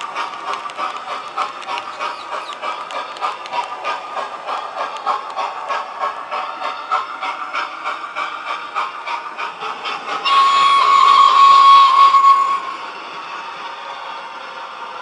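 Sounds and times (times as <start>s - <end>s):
steam locomotive exhaust chuff: 0.0s - 15.0s
steam whistle blast with hiss: 10.2s - 12.9s.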